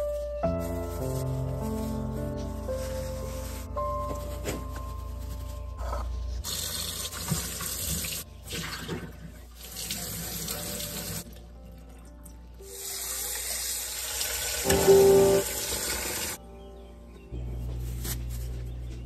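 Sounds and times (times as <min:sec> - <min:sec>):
tap water running into sink: 0:06.5 - 0:11.2.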